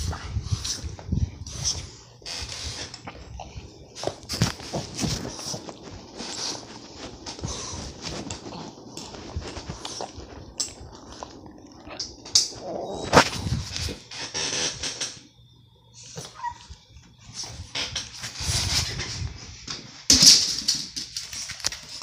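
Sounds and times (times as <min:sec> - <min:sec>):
dog moving about rustling: 0:00.6 - 0:11.4.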